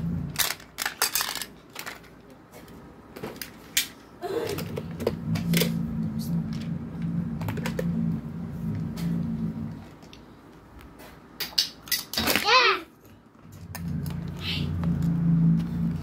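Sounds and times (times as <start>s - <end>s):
steady low hum: 0.0s - 0.9s, 2.4s - 11.4s, 13.0s - 16.0s
plastic toy cars clattering: 0.3s - 5.7s.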